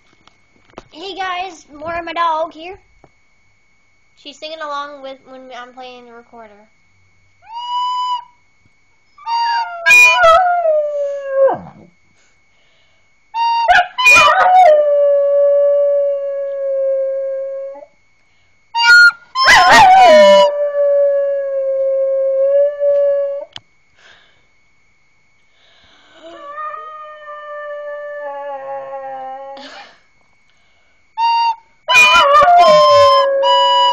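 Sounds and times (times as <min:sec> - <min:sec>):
dog howling: 0:09.2 - 0:11.9, 0:13.7 - 0:17.9, 0:19.4 - 0:23.5, 0:26.2 - 0:29.6, 0:31.9 - 0:33.9
recorder notes: 0:31.2 - 0:33.9.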